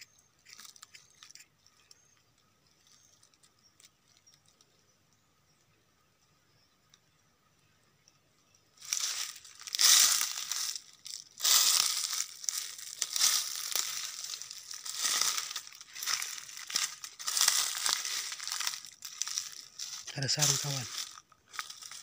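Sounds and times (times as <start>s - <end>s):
footsteps crunching dry leaves: 8.8s - 22.0s.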